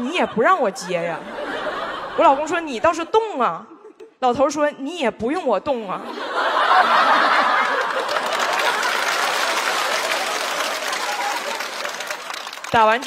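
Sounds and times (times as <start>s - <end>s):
studio audience laughing: 0.0s - 3.0s, 6.0s - 12.5s
audience applauding: 6.7s - 13.0s.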